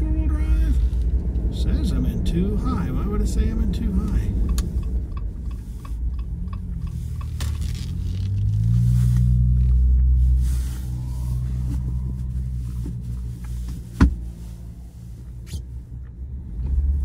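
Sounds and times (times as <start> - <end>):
car engine revving uphill: 0.0 - 17.0.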